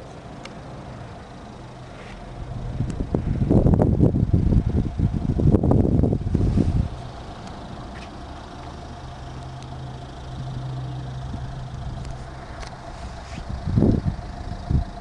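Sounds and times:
vehicle engines humming: 0.0 - 15.0
wind noise on microphone: 2.4 - 7.2, 13.0 - 15.0.

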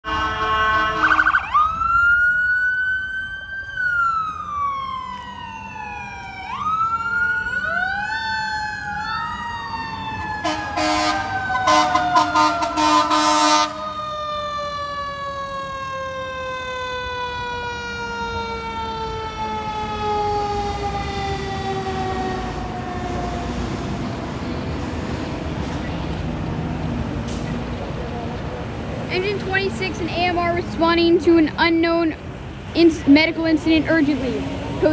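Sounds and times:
air horn blasts: 0.0 - 1.4, 10.4 - 13.8
fire engine siren wailing: 0.0 - 33.9.

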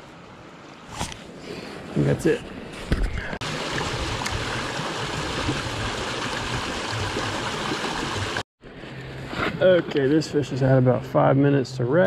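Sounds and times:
creek water rushing over rocks: 3.4 - 8.4.

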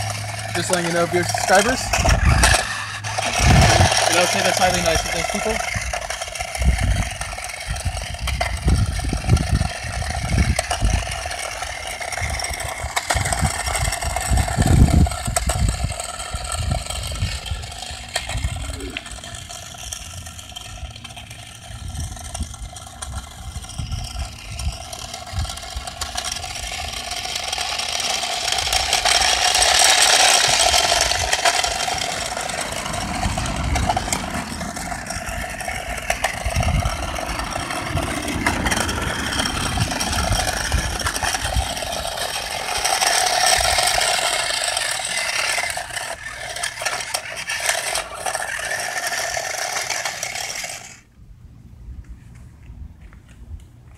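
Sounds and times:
plastic wheels rattling on concrete: 0.0 - 51.1
toy car motor whirring: 0.0 - 51.1.

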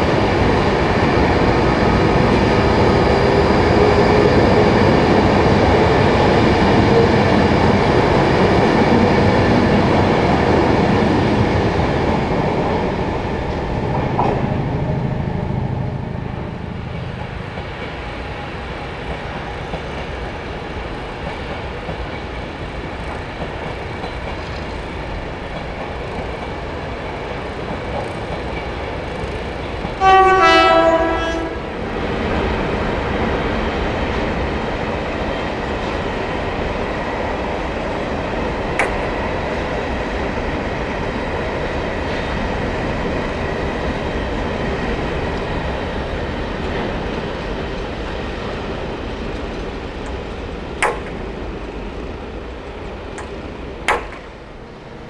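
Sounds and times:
electric train rushing past: 0.0 - 55.0
freight train rolling past: 0.0 - 55.0
rumble of wheels on rail: 0.0 - 55.0
two-note train horn blast: 30.0 - 31.6.

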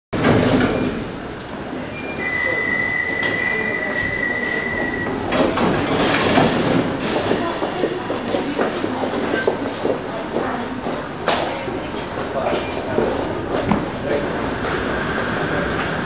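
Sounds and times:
sliding doors closing with clatter: 0.2 - 2.1, 2.9 - 10.1, 12.2 - 16.0
train equipment running: 4.4 - 11.2.

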